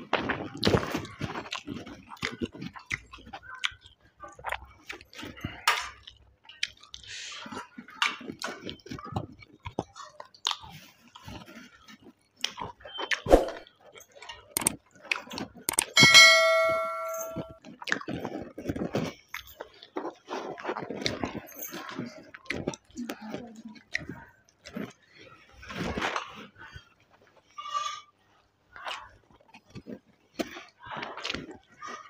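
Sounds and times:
wet chewing and smacking: 0.0 - 16.0, 17.6 - 27.6, 28.3 - 32.0.

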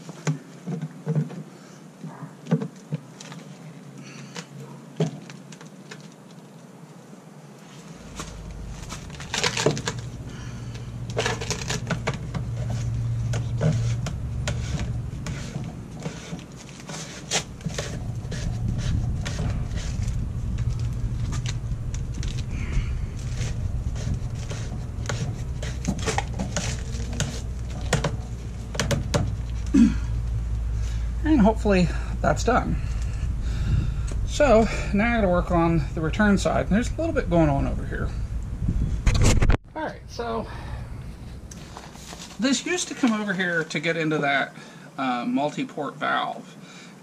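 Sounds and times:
steady low rumble: 7.6 - 43.1.

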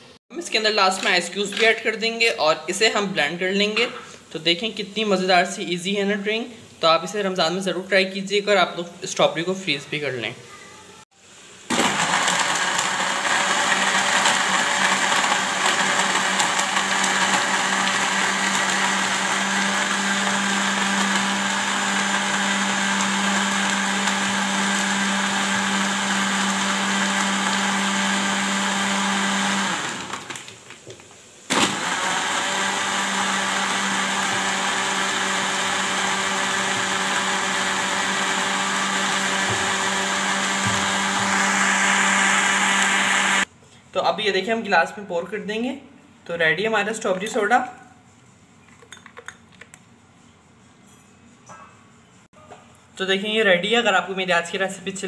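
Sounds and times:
blender running: 11.7 - 30.5, 31.5 - 43.5.

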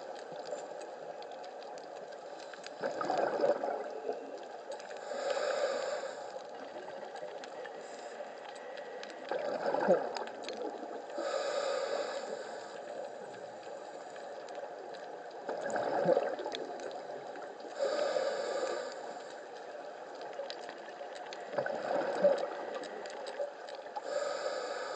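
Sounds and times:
faint crackling clicks: 0.0 - 24.9
exhaled bubbles bursting: 2.8 - 4.2, 9.2 - 11.1, 15.4 - 17.4, 20.4 - 23.9
diver inhaling through regulator: 5.0 - 6.5, 11.2 - 12.9, 17.8 - 19.5, 24.0 - 24.9.

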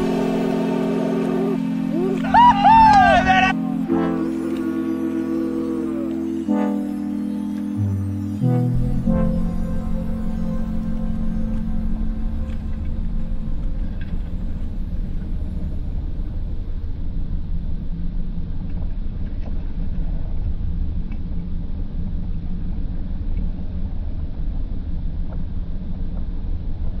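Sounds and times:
jet ski engine rumble: 0.0 - 6.3.

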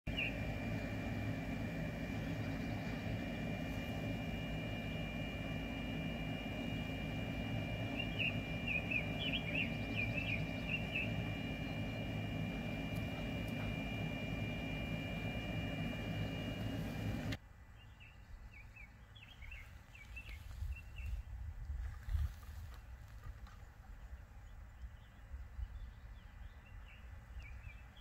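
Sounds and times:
thin high whine: 0.1 - 17.4
small bird chirps: 7.9 - 14.3.

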